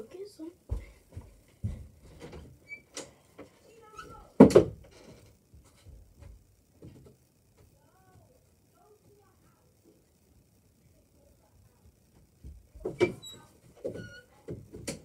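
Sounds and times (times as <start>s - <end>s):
faint thumps and bumps: 0.6s - 2.6s, 11.8s - 15.0s.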